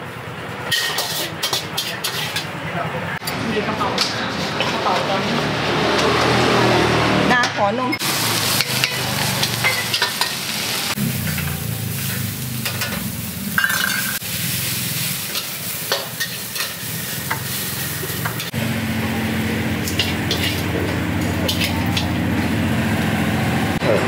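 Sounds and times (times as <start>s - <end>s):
metal utensils scraping a wok: 0.6s - 6.8s, 8.0s - 18.5s, 19.8s - 22.2s
rice sizzling in a wok: 8.0s - 18.5s, 19.8s - 22.0s.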